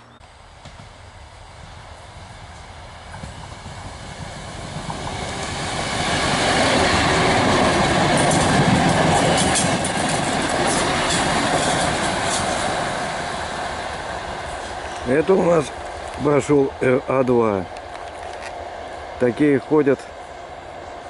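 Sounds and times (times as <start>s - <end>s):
diesel railcar passing: 0.0s - 21.0s
wheels clicking over rail joints: 6.4s - 12.9s.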